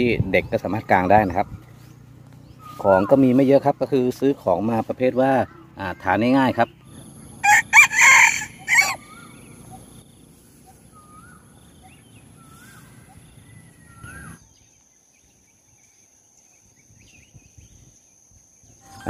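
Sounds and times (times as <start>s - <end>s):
faint short chirping calls: 0.0s - 7.4s, 8.5s - 19.0s
rooster crowing: 7.4s - 9.4s.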